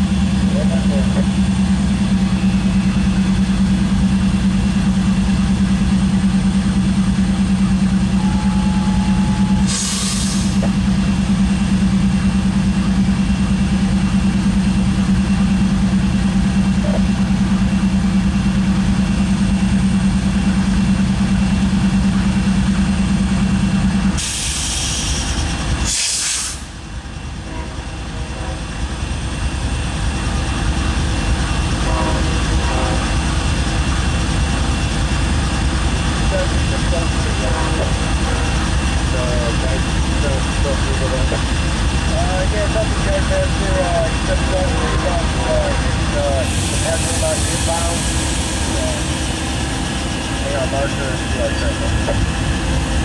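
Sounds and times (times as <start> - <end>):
diesel locomotive humming: 0.0 - 53.0
air hissing: 9.7 - 10.6, 24.2 - 26.7.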